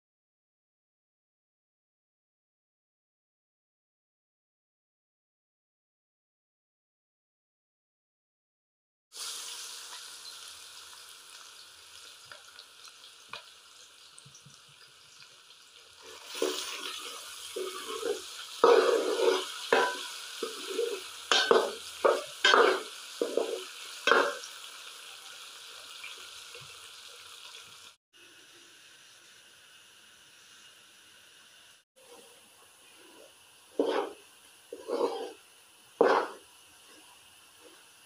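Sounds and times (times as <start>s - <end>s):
potatoes sizzling in a pan: 9.2s - 38.0s
metal ladle scraping a pan: 16.0s - 24.5s, 32.0s - 35.4s, 36.0s - 37.8s.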